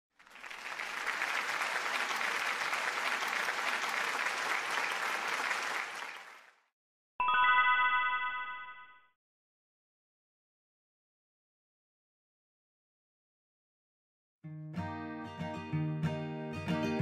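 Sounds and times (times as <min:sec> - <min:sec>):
crowd applauding: 0:00.1 - 0:06.7
bright bell-like chime: 0:07.2 - 0:09.1.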